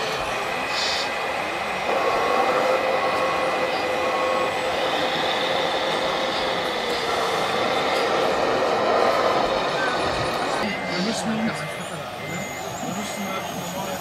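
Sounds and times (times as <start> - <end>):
higher whine: 0.0 - 14.0
model truck motor whine: 0.0 - 14.0.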